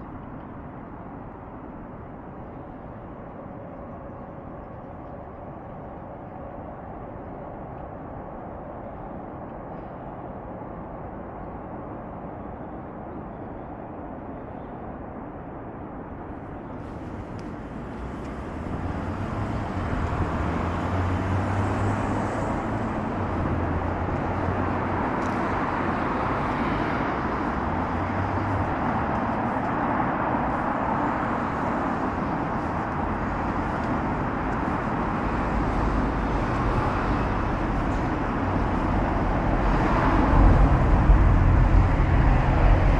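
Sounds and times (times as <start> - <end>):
passing cars and trucks: 16.0 - 42.9.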